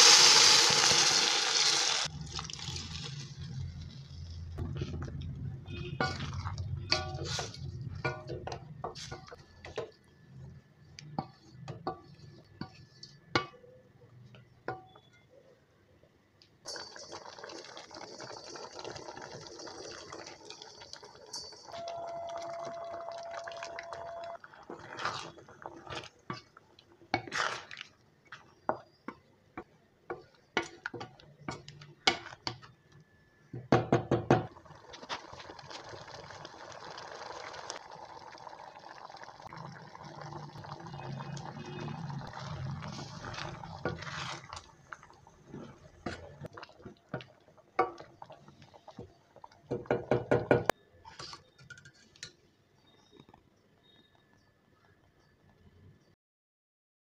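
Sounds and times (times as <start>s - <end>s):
utensils knocking on pot: 6.9s - 9.3s
stew sloshing: 34.8s - 48.8s.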